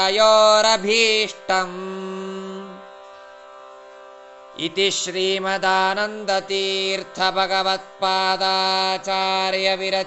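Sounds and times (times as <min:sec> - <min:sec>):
person chanting: 0:00.0 - 0:02.9, 0:04.6 - 0:10.0.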